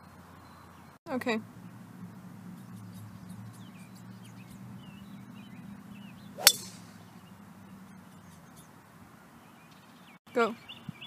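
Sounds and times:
golf driver striking ball: 0:06.4 - 0:07.1.

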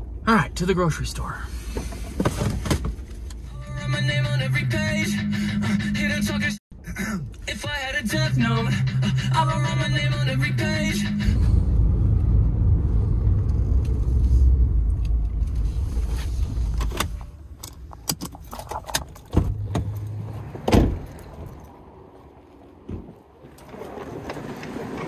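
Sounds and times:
truck engine and road rumble: 0:00.0 - 0:25.0
car door shutting: 0:18.1 - 0:21.6.

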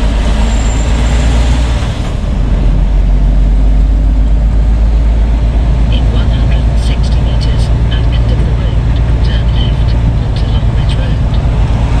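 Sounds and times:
diesel lorry engine rumble: 0:00.0 - 0:12.0
road noise: 0:00.0 - 0:12.0.

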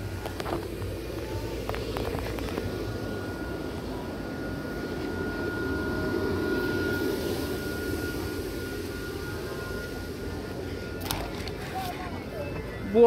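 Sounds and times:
high-pitched whine: 0:00.0 - 0:13.0
low mechanical hum: 0:00.0 - 0:13.0.

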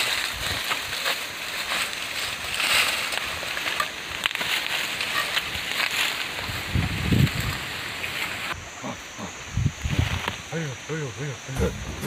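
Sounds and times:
small twigs snapping: 0:00.0 - 0:06.6
dry leaves rustling and crackling: 0:00.0 - 0:08.7.

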